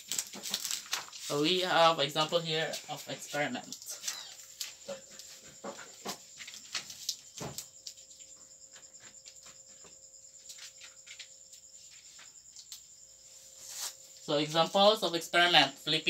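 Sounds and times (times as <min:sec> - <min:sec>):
paper rustling: 0:00.0 - 0:01.6, 0:06.0 - 0:08.0, 0:10.4 - 0:12.3.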